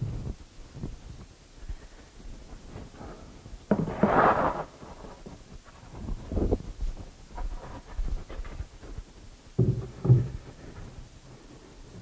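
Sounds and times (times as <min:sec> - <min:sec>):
thumps and knocks on wood: 0:03.7 - 0:04.2, 0:09.6 - 0:10.5.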